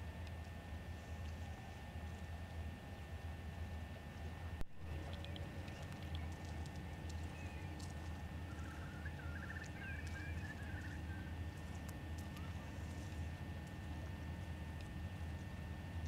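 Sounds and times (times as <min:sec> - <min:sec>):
steady low rumble: 0:00.0 - 0:16.0
small bird chirping: 0:08.5 - 0:11.3.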